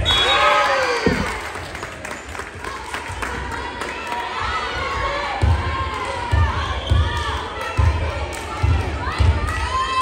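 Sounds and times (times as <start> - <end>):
crowd cheering and shrieking: 0.0 - 1.6.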